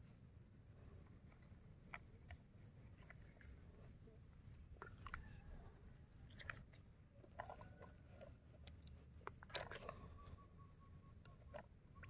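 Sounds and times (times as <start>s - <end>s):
wet mud crunching: 6.2s - 10.3s.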